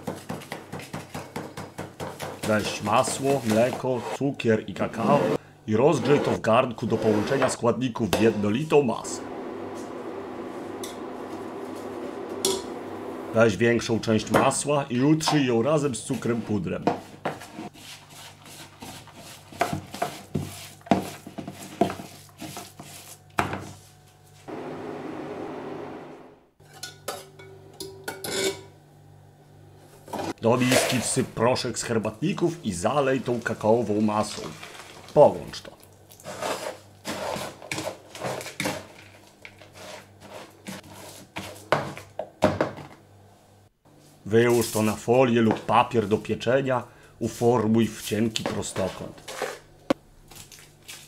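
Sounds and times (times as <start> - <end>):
spatula scraping crumbs in bowl: 6.0 - 7.6, 36.2 - 38.8, 39.6 - 41.6, 49.0 - 49.7.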